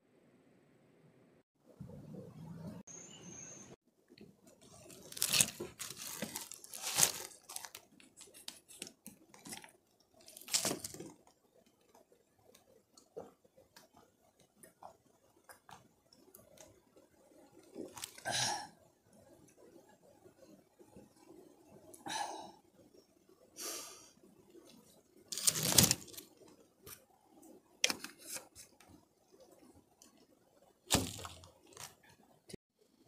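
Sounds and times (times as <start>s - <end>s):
water bottle handling rustle: 4.5s - 11.3s, 25.3s - 26.3s, 30.9s - 32.0s.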